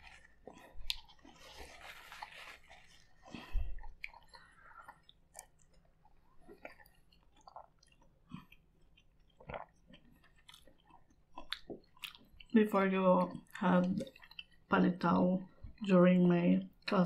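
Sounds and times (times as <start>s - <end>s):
people chewing: 0.0s - 14.7s
paper towel rustling: 1.4s - 3.2s.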